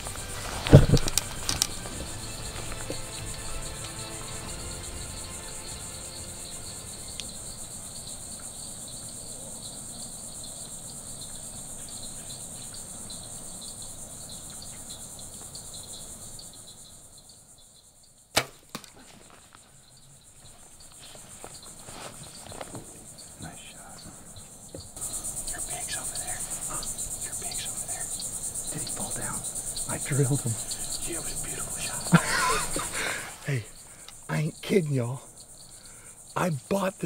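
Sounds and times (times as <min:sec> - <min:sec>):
crickets and insects trilling: 0:00.0 - 0:37.0
compound bow shot crack: 0:00.5 - 0:02.0, 0:18.3 - 0:19.3
arrow hitting animal: 0:00.6 - 0:01.8, 0:18.3 - 0:19.0.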